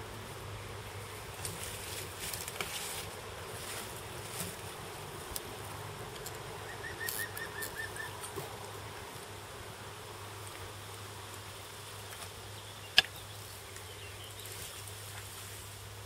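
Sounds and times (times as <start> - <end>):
insect buzzing: 0.6 - 15.6
bird trill: 6.6 - 8.2.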